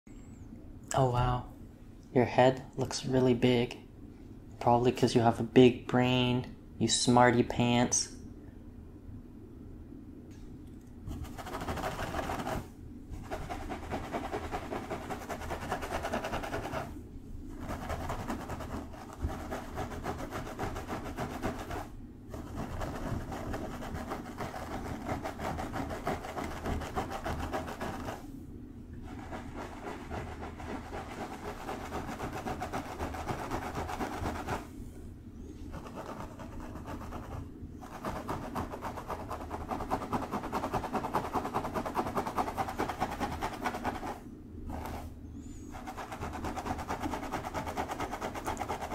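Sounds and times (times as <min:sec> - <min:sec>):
fingers rustling through hair: 0:11.1 - 0:28.3, 0:29.0 - 0:34.8, 0:35.5 - 0:48.9.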